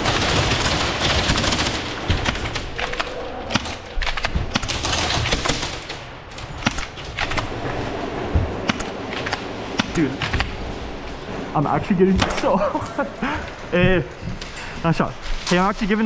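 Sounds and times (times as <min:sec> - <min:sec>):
airsoft guns firing: 0:00.0 - 0:07.5
noisy background: 0:00.0 - 0:16.0.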